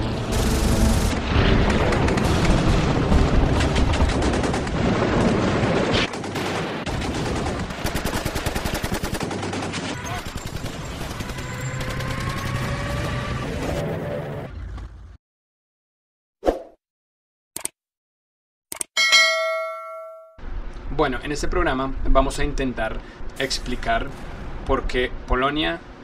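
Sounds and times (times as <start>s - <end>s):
heavy rumble: 0.0s - 6.2s
machine-gun fire: 0.1s - 13.1s
gunfire: 0.3s - 12.7s.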